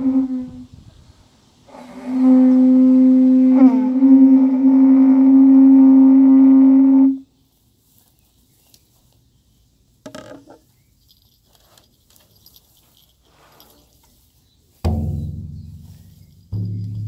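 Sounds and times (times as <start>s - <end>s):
handling rustle and clatter: 7.5s - 17.0s
frame drum boom: 14.8s - 17.0s.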